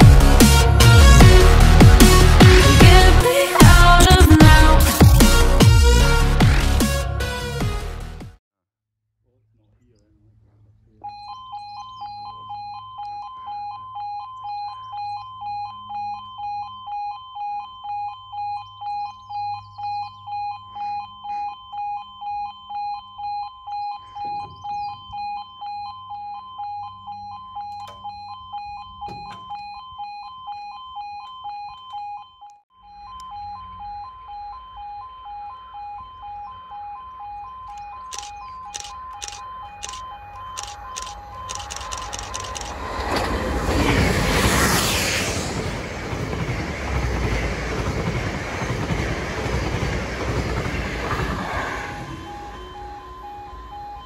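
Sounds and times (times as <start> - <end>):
level crossing alarm two-tone: 11.0 - 43.2, 51.7 - 54.0.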